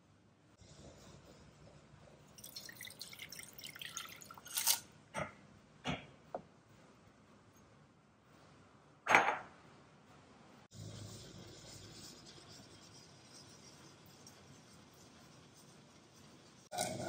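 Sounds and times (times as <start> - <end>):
sauce pouring into a saucepan: 2.4 - 4.8
sharp ticks of pouring jug: 2.4 - 4.8
small splashes and drips: 2.4 - 4.8.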